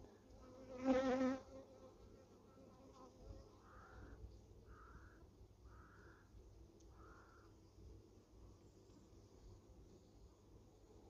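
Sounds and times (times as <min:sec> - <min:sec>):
faint bird calls: 0:03.6 - 0:07.6.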